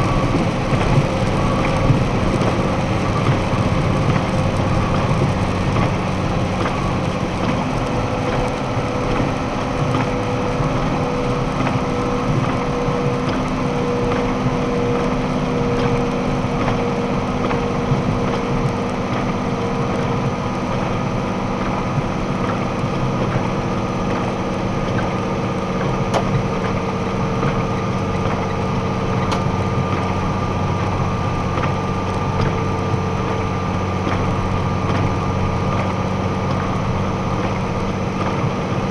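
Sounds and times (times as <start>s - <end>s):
truck engine hum: 0.0s - 38.9s
tyres hissing on wet road: 0.0s - 38.9s.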